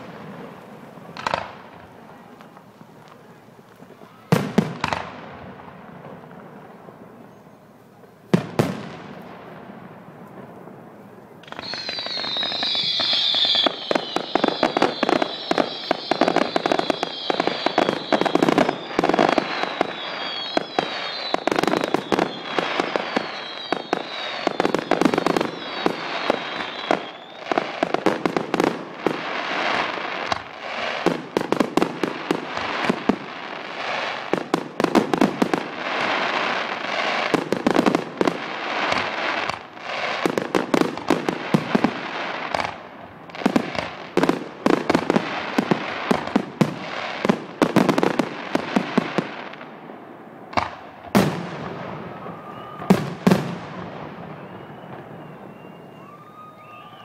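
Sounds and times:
fireworks bangs: 0.0 - 57.0
fireworks crackling: 0.0 - 57.0
high falling whistle: 11.5 - 27.6, 52.1 - 53.1, 54.2 - 57.0.

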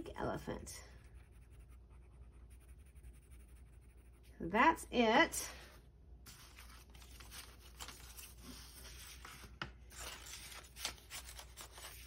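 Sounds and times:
paper bills rustling: 6.3 - 12.0.

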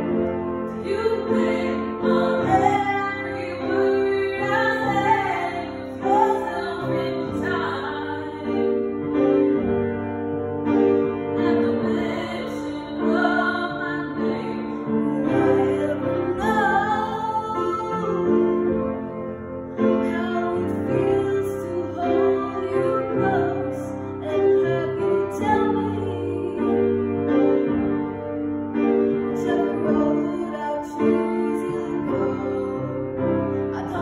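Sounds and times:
upright piano: 0.0 - 34.0
girl singing a slow ballad: 0.8 - 8.7, 11.4 - 18.6, 20.0 - 27.0, 29.3 - 34.0.

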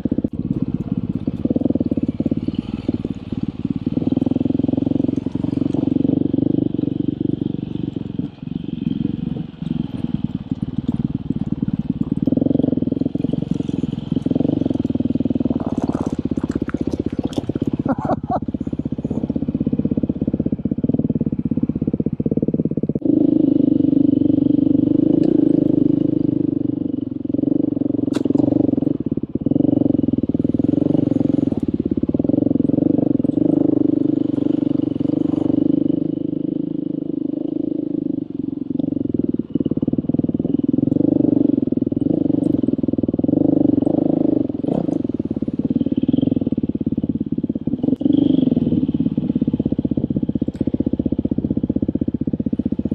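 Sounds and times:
dirt bike engine revving: 0.0 - 7.9, 23.0 - 38.3, 39.1 - 51.2.

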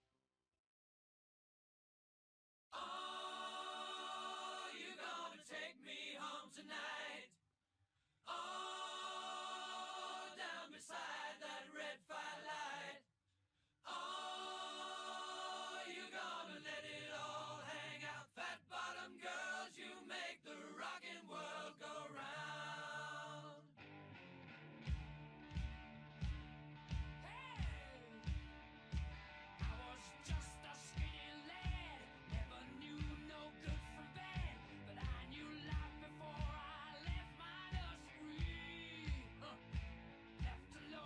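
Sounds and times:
choir singing without instruments: 2.7 - 7.4, 8.2 - 13.0, 13.8 - 23.7, 29.6 - 41.0.

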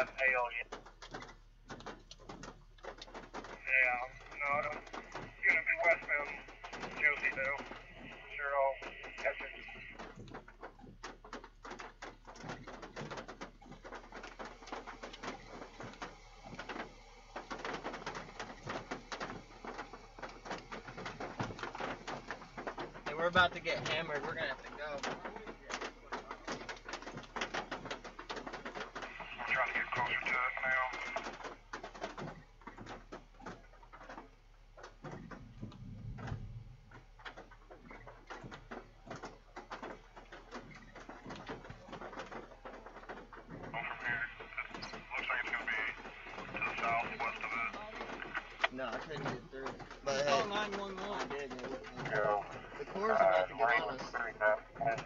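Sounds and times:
hail pelting a vehicle: 0.0 - 55.0
rain tapping on car roof: 0.0 - 55.0
low rumble: 35.4 - 37.2.

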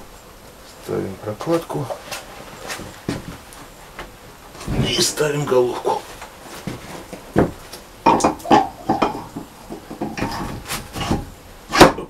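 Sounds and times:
metal knocks and clatters: 6.7 - 11.9.

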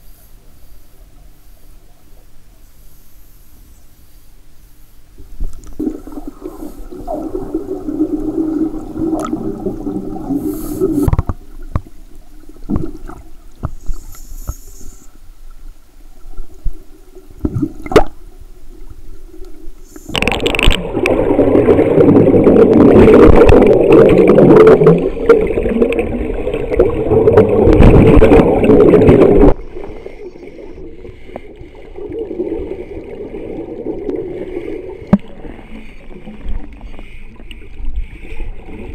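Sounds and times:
underwater air bubbling: 5.2 - 15.0, 16.1 - 38.9
underwater clicks and knocks: 11.0 - 12.0, 12.7 - 13.9.

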